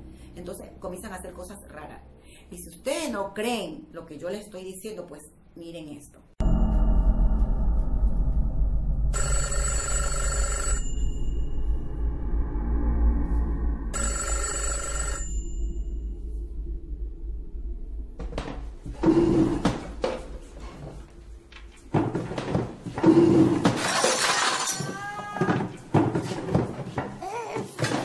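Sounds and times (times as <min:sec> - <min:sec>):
low hum: 0:06.4 - 0:14.4, 0:15.2 - 0:22.0
ringing tone: 0:09.1 - 0:12.5, 0:13.9 - 0:16.4.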